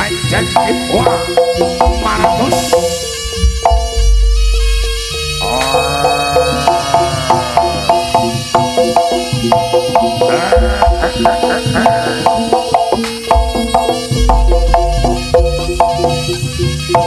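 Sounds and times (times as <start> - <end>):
gamelan drums and metallophones: 0.0 - 17.0
held melody line: 0.0 - 17.0.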